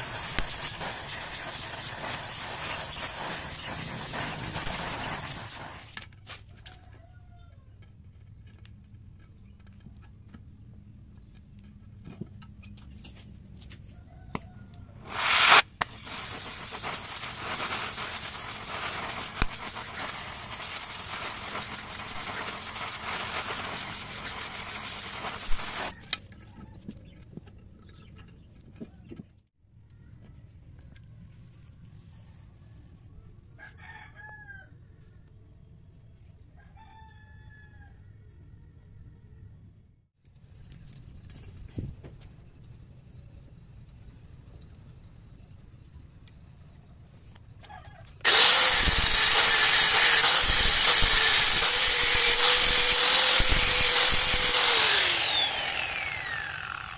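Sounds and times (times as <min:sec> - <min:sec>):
gas torch hissing: 0:00.0 - 0:06.0, 0:15.0 - 0:25.9
gas torch igniting with a pop: 0:00.0 - 0:06.1, 0:15.1 - 0:23.8
rooster crowing: 0:33.6 - 0:34.8, 0:36.6 - 0:38.1.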